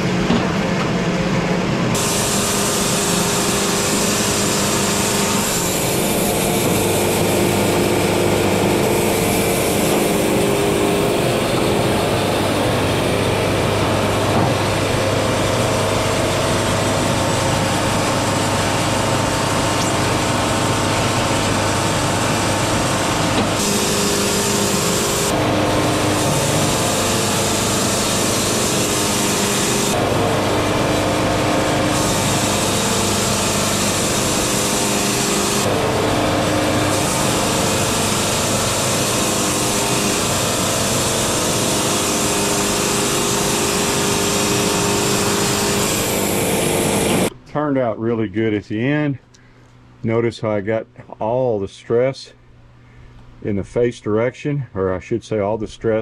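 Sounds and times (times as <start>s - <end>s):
diesel engine drone: 0.0s - 47.4s
band saw blade hissing through wood: 2.0s - 14.3s, 23.5s - 30.6s.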